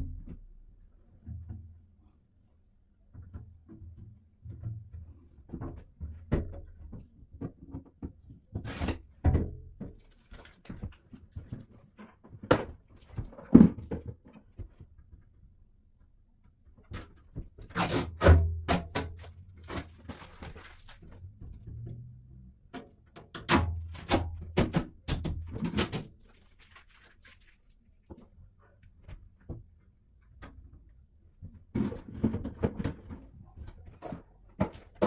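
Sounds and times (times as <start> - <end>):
low rumbling handling noise: 0.0 - 2.0, 19.2 - 23.1
hands handling small objects: 26.1 - 28.3.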